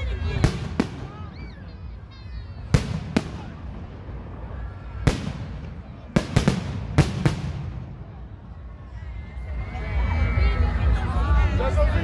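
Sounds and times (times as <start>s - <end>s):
fireworks bursting: 0.1s - 8.2s.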